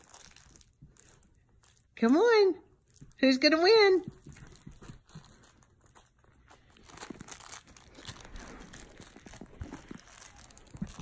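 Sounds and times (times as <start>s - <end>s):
faint rustling: 3.8s - 11.0s.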